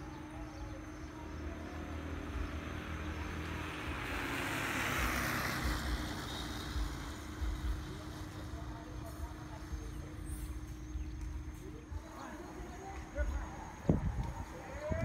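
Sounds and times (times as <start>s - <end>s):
motorcycle passing by: 1.1s - 9.0s.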